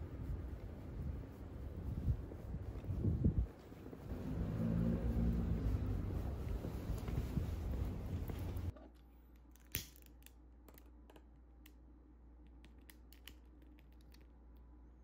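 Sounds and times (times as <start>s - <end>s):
traffic rumble: 0.0s - 8.8s.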